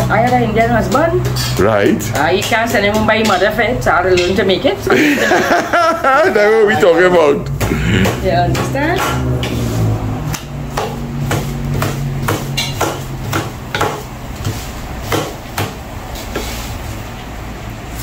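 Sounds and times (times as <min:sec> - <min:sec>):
wooden paddles knocking on iron pan: 0:00.0 - 0:04.7.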